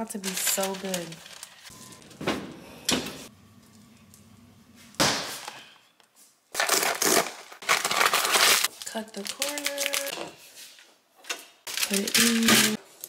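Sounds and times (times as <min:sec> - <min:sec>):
plastic packet crinkling: 0:00.0 - 0:01.7, 0:06.5 - 0:10.1, 0:11.7 - 0:12.8.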